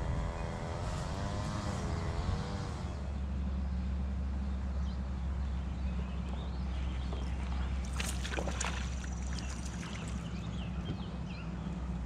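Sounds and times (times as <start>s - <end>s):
steady low hum: 0.0s - 12.0s
fish splashing at water surface: 7.2s - 10.4s.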